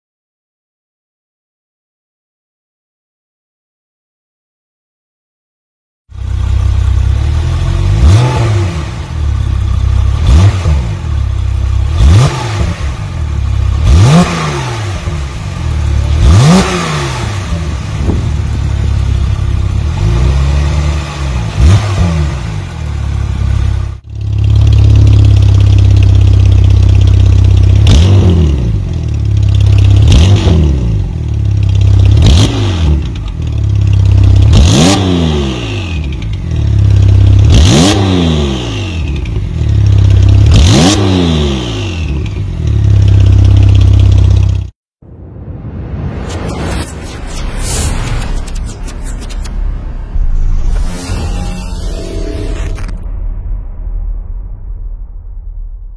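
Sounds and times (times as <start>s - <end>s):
car engine idling: 6.2s - 8.0s, 22.8s - 27.9s
car engine revving: 6.2s - 44.4s.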